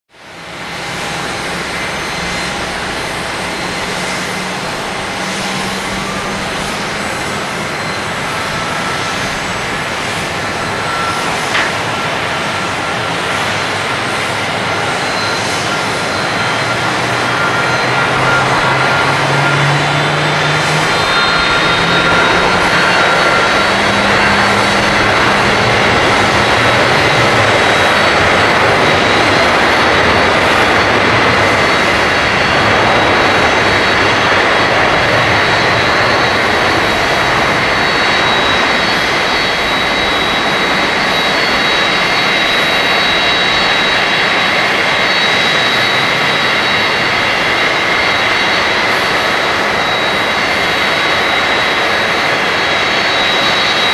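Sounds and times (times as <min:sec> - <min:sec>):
high fan whine: 0:00.1 - 0:53.9
jet engine roar: 0:00.1 - 0:53.9.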